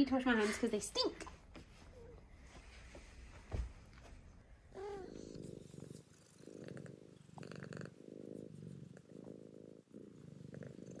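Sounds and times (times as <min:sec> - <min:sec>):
cat purring: 0:04.3 - 0:11.0.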